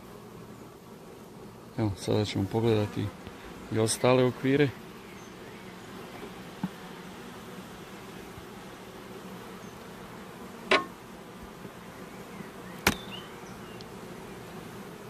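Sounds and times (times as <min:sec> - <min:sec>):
honeybees buzzing: 0:00.0 - 0:15.0
hive tool clicking on wooden frames: 0:03.2 - 0:03.6, 0:06.1 - 0:07.0, 0:10.6 - 0:11.0, 0:12.7 - 0:14.0.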